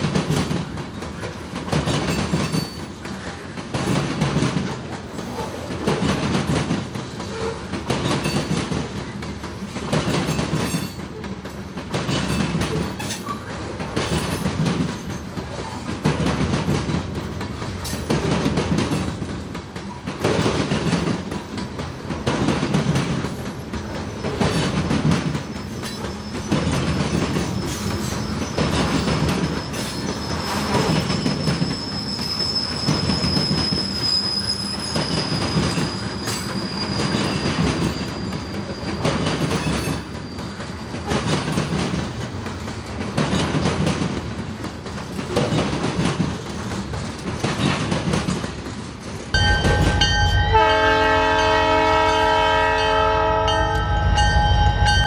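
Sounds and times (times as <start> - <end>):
train wheels clacking over rail joints: 0.0 - 53.5
wheel squeal: 24.0 - 41.4
locomotive air horn: 49.7 - 55.0.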